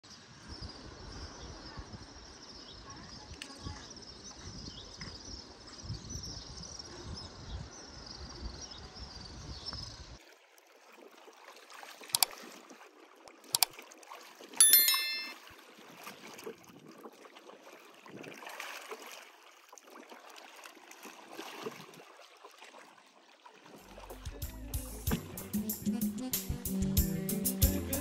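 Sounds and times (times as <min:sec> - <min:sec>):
wind rumbling on microphone: 0:00.1 - 0:10.2
high chirping: 0:14.6 - 0:15.4.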